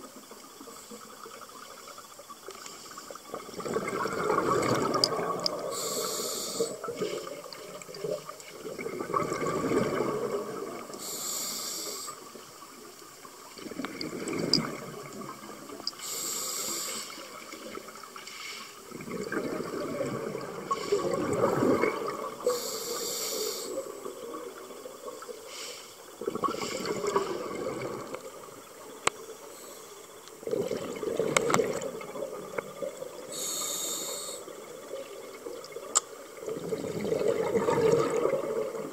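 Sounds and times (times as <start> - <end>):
exhaled bubbles gurgling: 3.1 - 11.4, 12.1 - 18.2, 18.8 - 38.9
diver breathing through regulator: 5.6 - 7.4, 11.0 - 12.2, 16.0 - 17.3, 22.4 - 23.9, 33.3 - 34.5.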